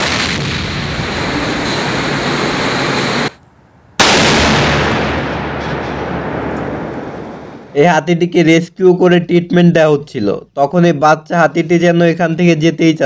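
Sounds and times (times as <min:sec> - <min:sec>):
railgun shot roar: 0:00.0 - 0:03.3, 0:04.0 - 0:07.7
sudden blast: 0:00.0 - 0:03.4, 0:04.0 - 0:07.8.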